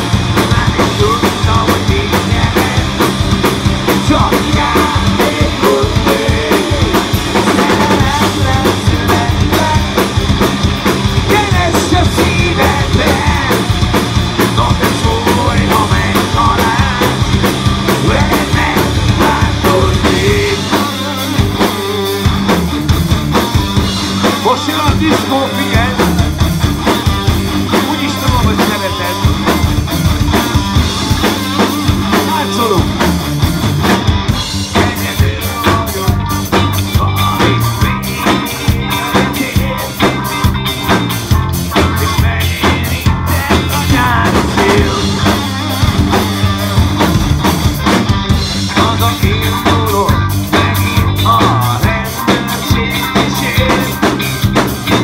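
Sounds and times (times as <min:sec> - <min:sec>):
drum kit beat: 0:00.0 - 0:55.0
live rock band playing: 0:00.0 - 0:55.0.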